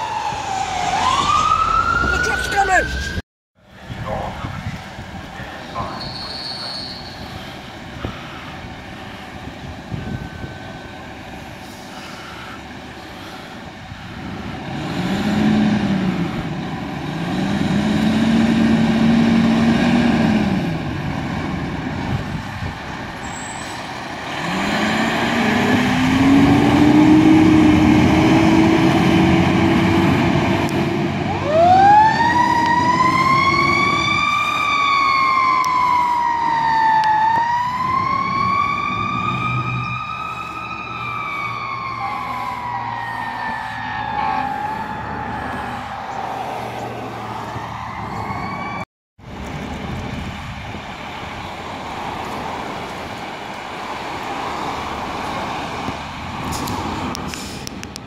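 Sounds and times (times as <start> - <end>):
fire engine low siren winding: 0.0 - 3.2, 9.7 - 11.1, 24.4 - 48.8
high siren wail: 0.0 - 3.2, 9.0 - 11.2, 24.6 - 48.9
truck engine rumble: 0.0 - 58.0.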